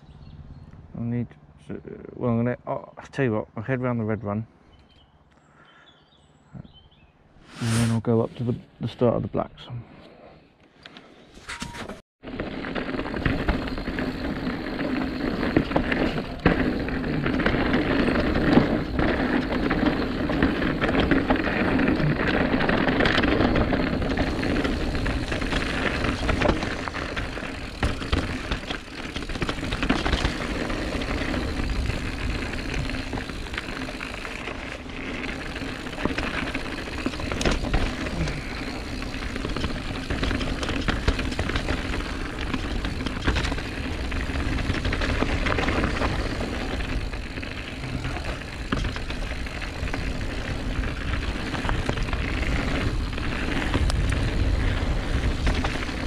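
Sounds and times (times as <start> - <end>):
bike tyre noise over dirt: 7.4 - 8.1, 11.4 - 56.0
bike knocks and rattles: 11.5 - 56.0.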